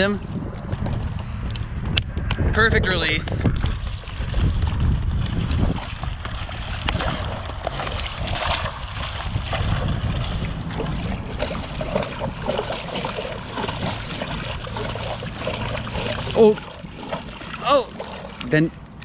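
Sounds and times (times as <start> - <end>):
fish splashing at water surface: 3.6 - 18.6.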